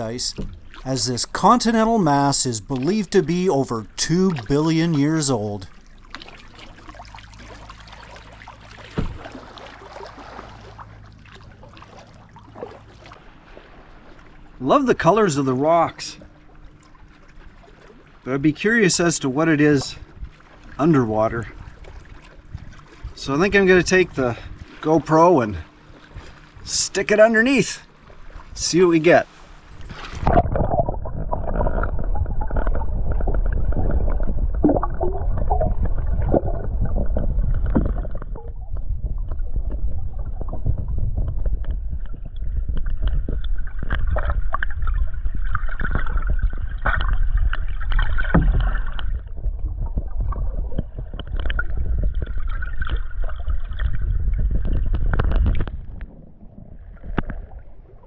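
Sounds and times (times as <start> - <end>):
muffled underwater water sloshing: 0.0 - 58.0
underwater knocks: 8.9 - 9.4, 30.2 - 56.2.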